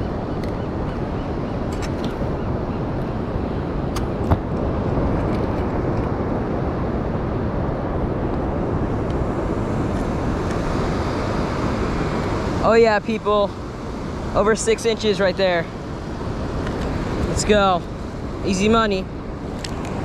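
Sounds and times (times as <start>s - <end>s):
ocean surf: 0.0s - 20.0s
wind buffeting microphone: 0.0s - 20.0s.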